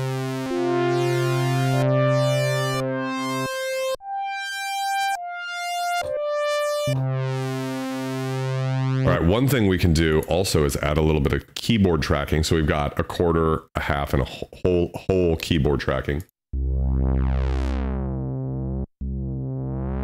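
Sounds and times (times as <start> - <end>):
synthesizer chords: 0.0 - 10.0, 16.5 - 20.0
low bass note: 8.9 - 9.7, 16.5 - 20.0.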